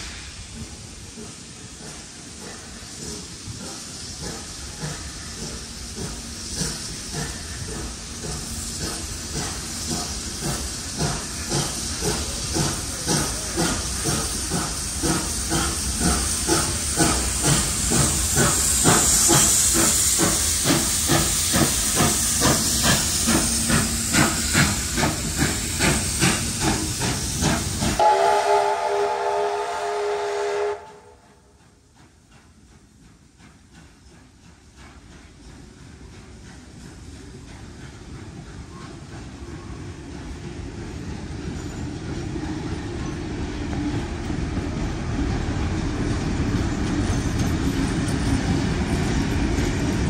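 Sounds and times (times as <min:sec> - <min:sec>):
steam hissing: 0:00.0 - 0:50.0
steam locomotive chuffing: 0:00.0 - 0:50.0
steam whistle: 0:28.0 - 0:31.4.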